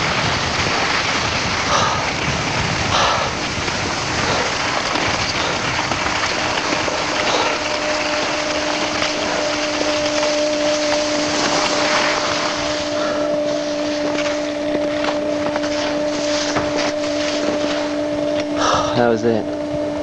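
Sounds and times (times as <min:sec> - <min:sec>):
wind rushing over microphone: 0:00.0 - 0:07.7
skis scraping over snow: 0:00.0 - 0:19.1
steady hum: 0:00.0 - 0:20.0.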